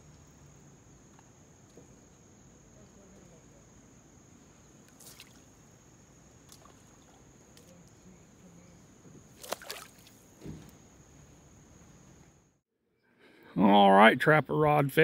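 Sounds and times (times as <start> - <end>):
water splashes and sloshes: 4.8 - 8.0, 9.2 - 10.4.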